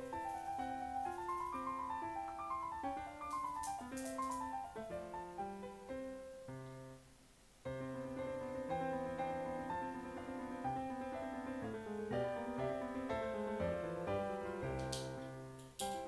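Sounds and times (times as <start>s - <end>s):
background piano music: 0.0s - 16.0s.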